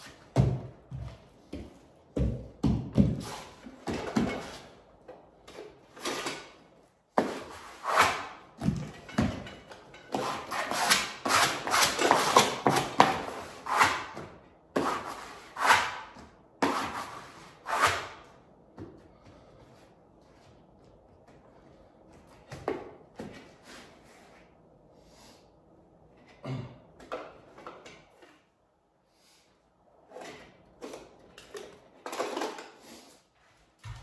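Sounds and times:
wallpaper being smoothed by hand: 14.8 - 18.2.

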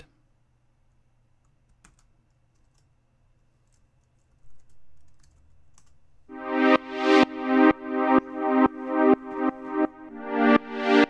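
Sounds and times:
keyboard typing and clicks: 3.6 - 10.3
pulsing synth string pad: 6.3 - 11.0.

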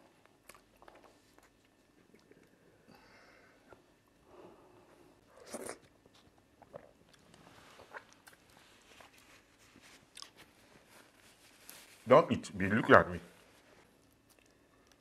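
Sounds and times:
soft chewing: 0.0 - 2.9, 3.5 - 12.0, 12.9 - 15.0.

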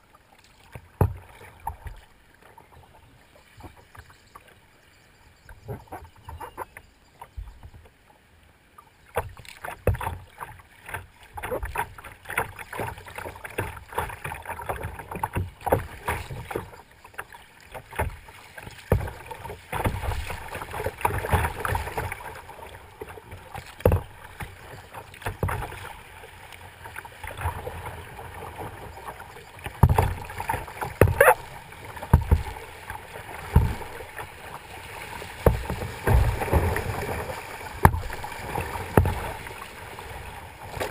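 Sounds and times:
water splashing against kayak hull: 0.0 - 4.6, 9.0 - 40.9
knocks and thumps: 29.8 - 30.2, 31.0 - 31.4, 32.1 - 32.5, 33.5 - 33.9, 35.4 - 36.8, 37.8 - 38.2.

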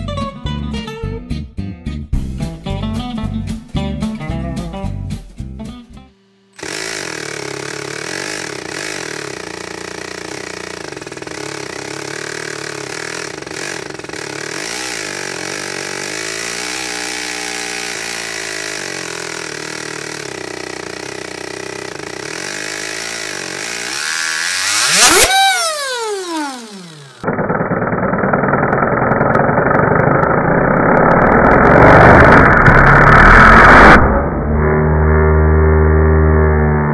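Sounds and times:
toy engine whining and rattling: 6.6 - 33.1.

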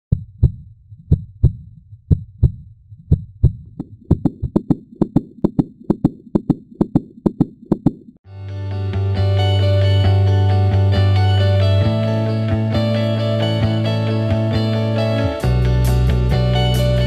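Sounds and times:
heartbeat thumps: 0.1 - 8.2.

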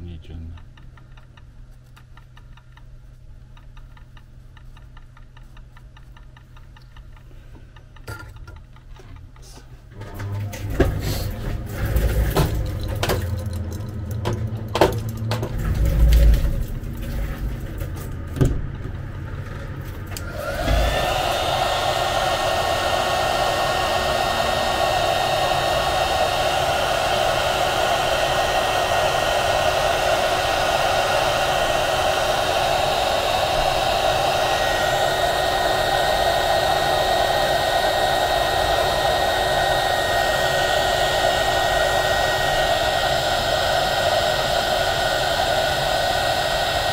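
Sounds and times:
hot-air gun blowing: 11.0 - 11.5, 20.2 - 46.9.

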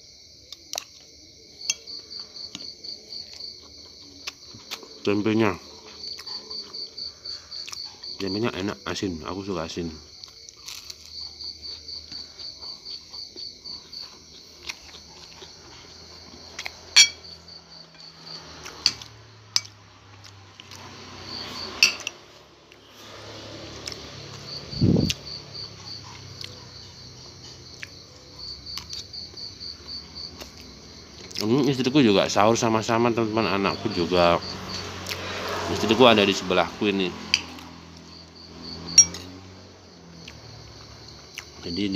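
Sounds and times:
crickets chirping: 0.0 - 41.9
metal spoon scraping ceramic plate: 16.9 - 17.3, 21.6 - 22.2, 38.9 - 39.3.

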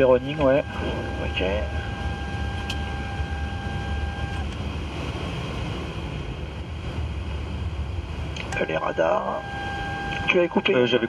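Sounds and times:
steady two-note tone: 0.0 - 4.4, 8.6 - 11.0
low rumble and hum: 0.0 - 11.0.

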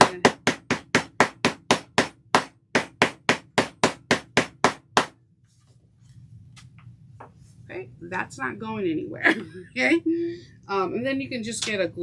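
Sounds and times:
rubber mallet tapping: 0.0 - 5.1.

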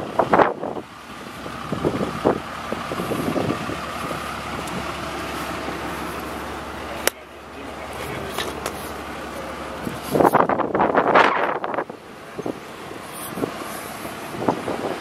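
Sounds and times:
truck engine idling: 0.0 - 15.0.

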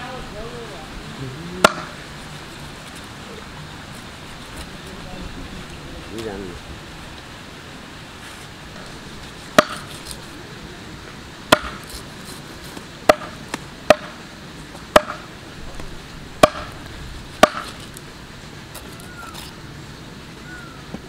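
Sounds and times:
cleaver chopping on wooden block: 1.6 - 2.0, 9.6 - 9.9, 11.5 - 11.9, 13.1 - 14.2, 14.9 - 15.2, 16.4 - 16.8, 17.4 - 17.8.

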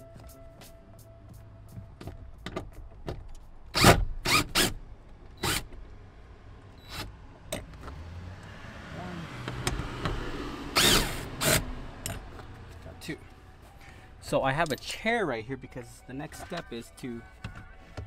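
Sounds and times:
cordless drill bursts: 3.8 - 4.8, 5.4 - 5.6, 10.7 - 11.6.

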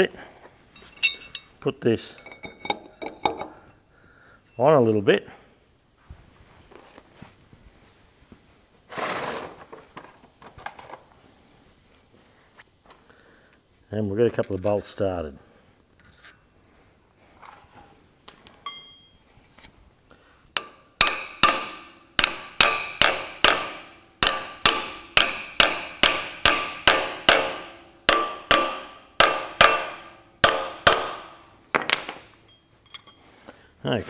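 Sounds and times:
hammer striking steel: 20.6 - 33.2.

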